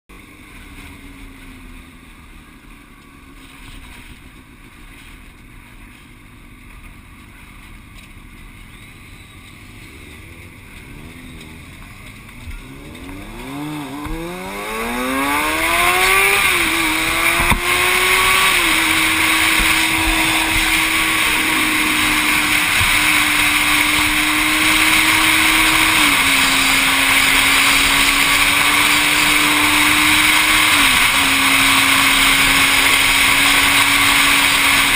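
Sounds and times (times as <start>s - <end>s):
motorcycle engine accelerating: 8.6s - 34.9s
wind rushing on helmet: 12.4s - 34.9s.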